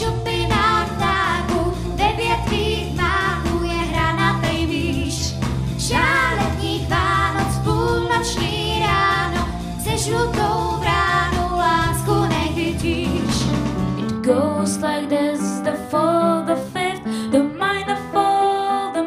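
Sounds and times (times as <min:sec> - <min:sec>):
instrumental backing music: 0:00.0 - 0:19.0
girl singing into a microphone: 0:14.2 - 0:19.0.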